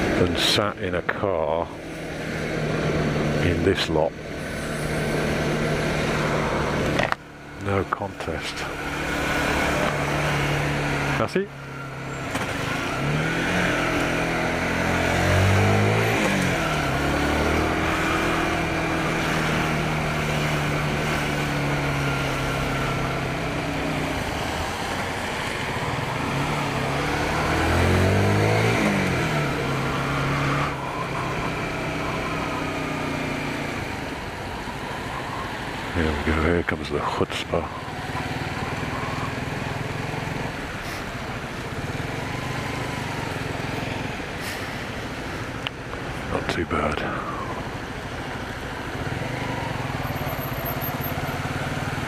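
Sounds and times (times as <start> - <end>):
wind and road noise: 0.0 - 52.0
motorcycle engine accelerating: 1.9 - 7.6, 8.5 - 34.7, 37.6 - 46.3.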